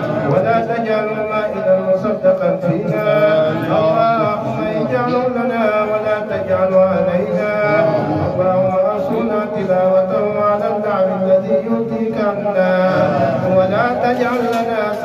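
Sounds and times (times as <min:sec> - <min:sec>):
man chanting into a microphone: 0:00.0 - 0:15.0.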